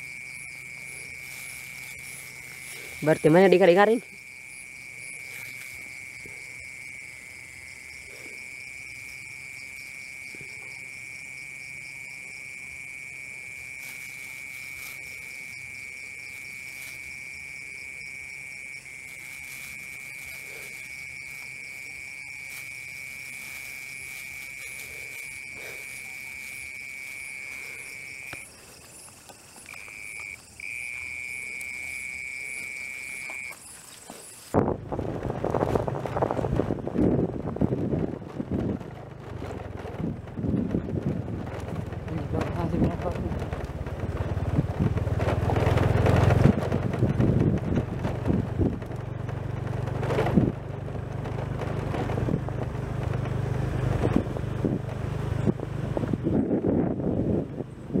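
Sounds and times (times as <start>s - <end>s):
faint insects pulsing rapidly: 0.0s - 58.0s.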